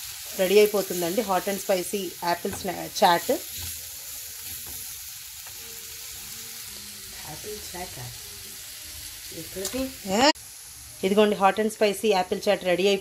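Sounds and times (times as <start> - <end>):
food sizzling in a pan: 0.0 - 13.0
spatula stirring: 0.6 - 5.0.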